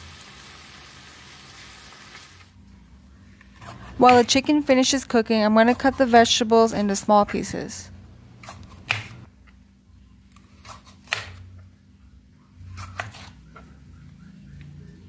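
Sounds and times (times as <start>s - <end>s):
knife cutting on plastic board: 8.4s - 9.2s.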